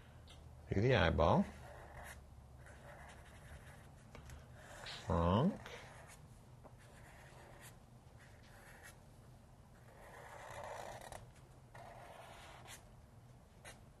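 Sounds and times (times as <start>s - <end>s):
marker scratching on paper: 1.5s - 4.0s, 4.6s - 5.1s, 5.8s - 6.2s, 6.8s - 9.0s, 9.8s - 12.8s.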